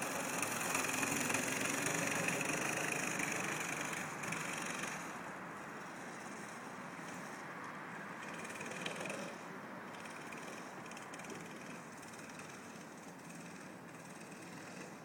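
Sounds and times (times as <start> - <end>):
outdoor hiss: 0.0 - 8.9
distant go-kart engine running: 0.0 - 15.0.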